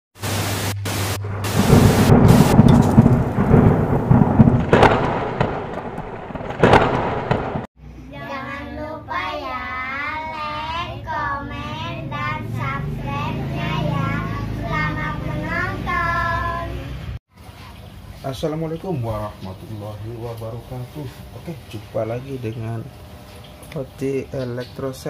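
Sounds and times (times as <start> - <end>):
television static hiss: 0.2 - 2.0
thunder rumbling and cracks: 0.8 - 7.7
children singing together: 8.2 - 17.0.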